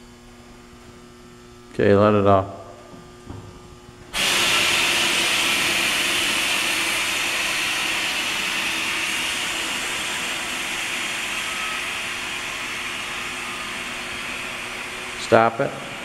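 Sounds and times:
compressed air hissing: 4.2 - 16.0.

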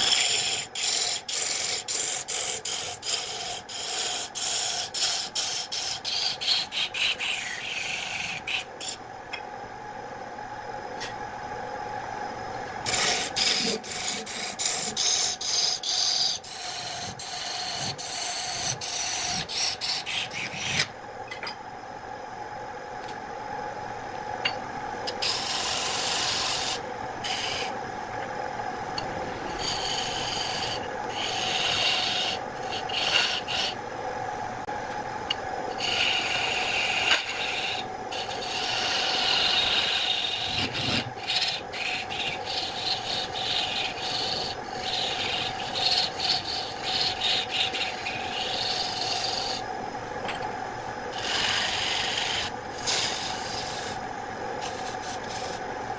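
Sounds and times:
lathe motor humming: 29.0 - 33.8, 35.7 - 49.6, 51.1 - 55.7
gouge scraping wood: 36.7 - 49.6.

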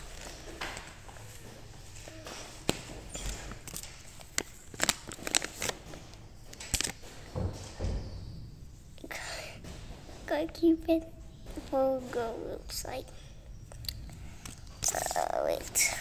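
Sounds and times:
packaging crinkling and rustling: 0.0 - 7.2.

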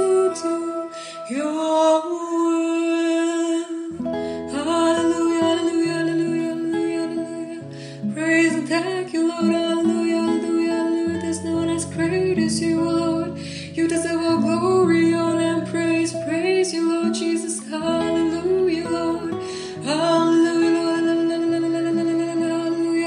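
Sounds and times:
guitar accompaniment: 0.0 - 23.0
woman singing worship song: 0.0 - 23.0.

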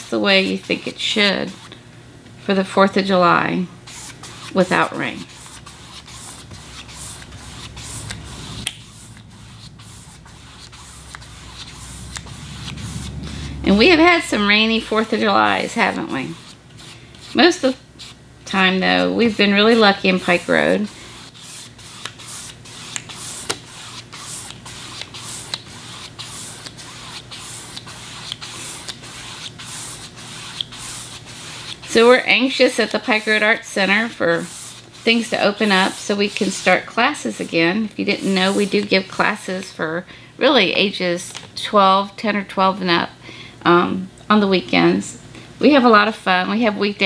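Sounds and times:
paintbrush swishing on canvas: 3.9 - 18.2, 19.2 - 39.0.

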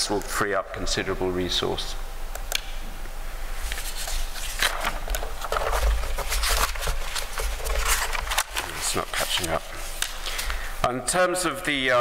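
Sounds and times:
rustling and scraping near microphone: 3.6 - 10.1.

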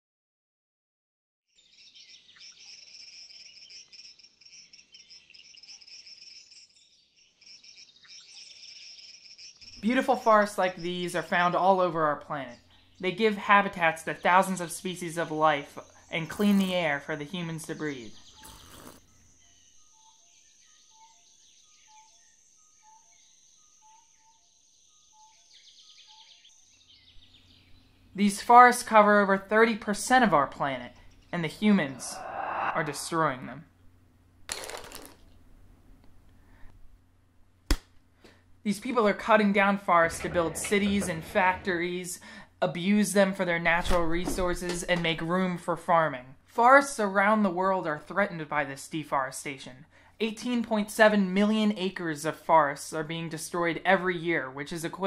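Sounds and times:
insects and birds chirping: 1.6 - 11.0, 14.1 - 28.4
fast insect trills: 2.6 - 9.7
lower bird call: 31.5 - 33.5.

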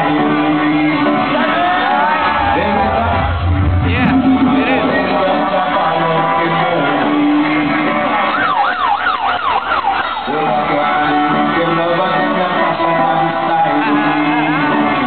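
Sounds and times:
loud electronic bass music: 2.1 - 8.1
siren-like sweeps: 2.2 - 5.6.

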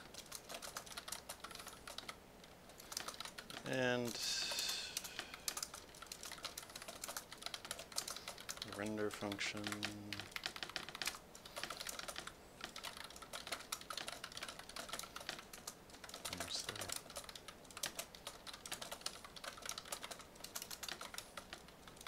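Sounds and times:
computer keyboard typing: 0.0 - 22.0.

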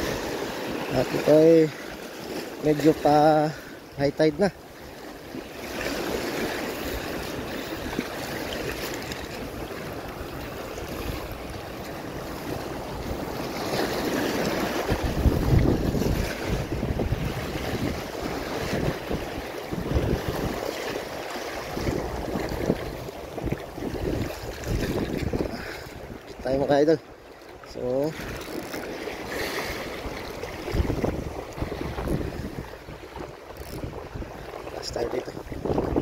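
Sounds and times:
wind buffeting microphone: 6.4 - 20.8, 21.7 - 26.4, 29.7 - 36.0.

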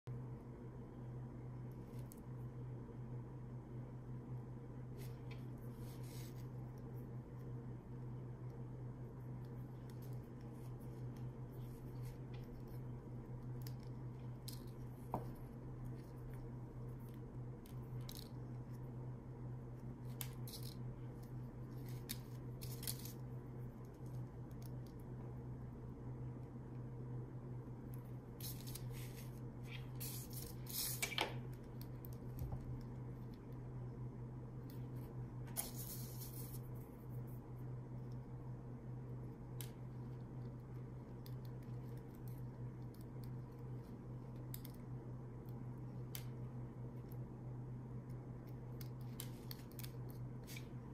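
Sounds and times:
steady low hum: 0.0 - 50.9.

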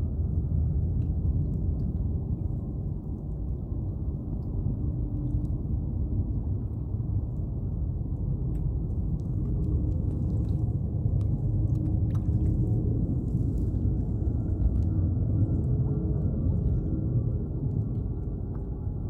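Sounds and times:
faint steady hum: 0.0 - 19.0
water slapping around kayak: 8.5 - 18.8.

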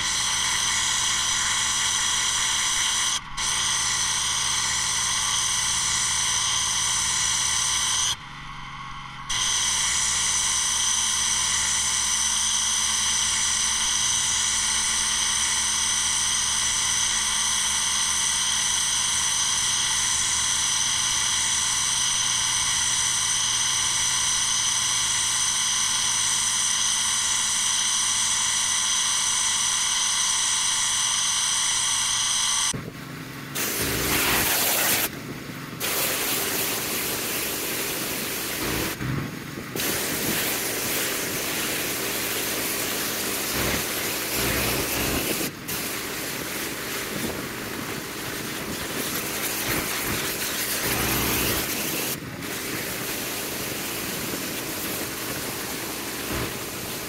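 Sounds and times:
engine running: 0.0 - 57.0
pressure washer spray hiss: 33.6 - 35.1, 35.8 - 39.0, 39.8 - 57.0.

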